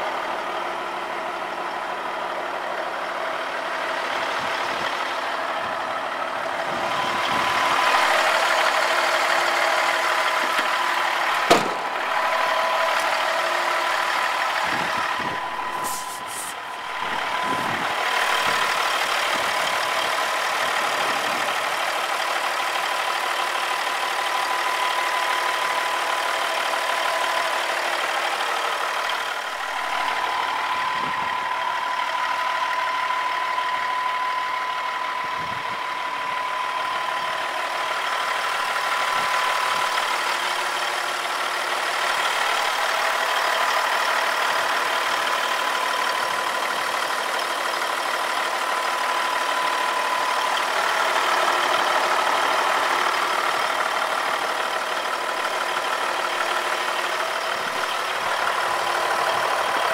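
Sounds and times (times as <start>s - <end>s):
diesel truck engine idling: 0.0s - 59.9s
thin steady whine: 4.4s - 22.6s, 24.0s - 41.5s.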